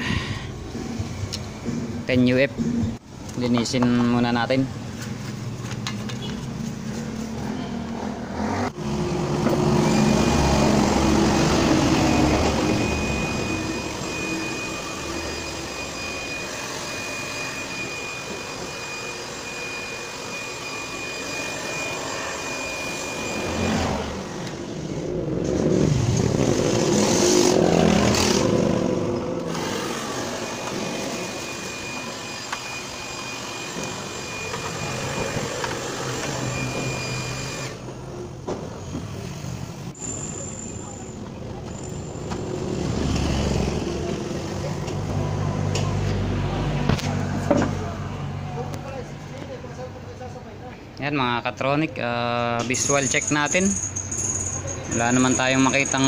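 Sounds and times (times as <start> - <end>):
electric dust blower whining: 8.5 - 37.9.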